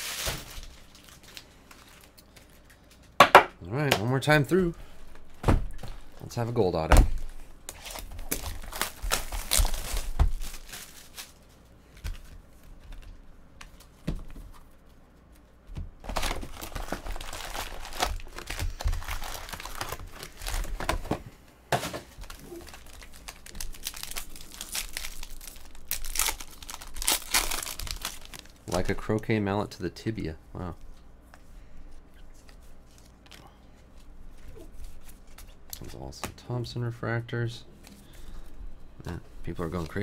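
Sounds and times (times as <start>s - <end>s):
foil pack tearing: 0.0s - 2.2s, 7.7s - 11.4s, 16.0s - 21.0s, 22.2s - 29.0s
foil packs crinkling: 0.0s - 3.2s, 5.7s - 13.2s, 16.0s - 21.2s, 22.1s - 29.4s.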